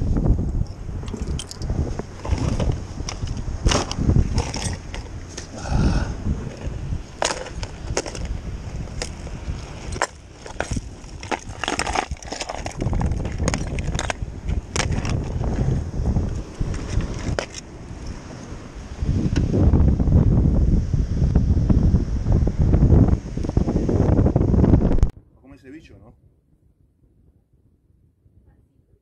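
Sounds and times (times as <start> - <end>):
low wind rumble: 0.0 - 29.0
handling noise on microphone: 0.7 - 18.6
footsteps on gravel: 1.4 - 14.2.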